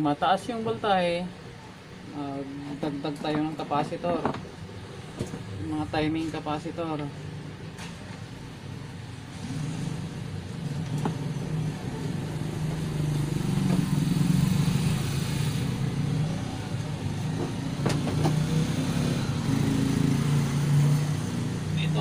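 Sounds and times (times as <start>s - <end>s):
vehicle engine droning: 7.1s - 22.0s.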